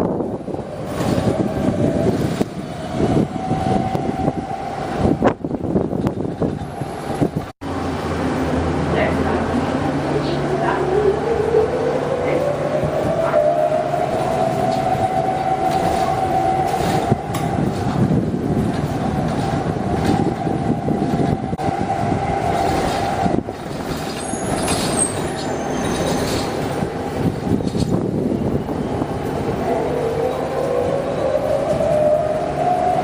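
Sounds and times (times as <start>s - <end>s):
faint high squeal: 24.1s - 26.6s.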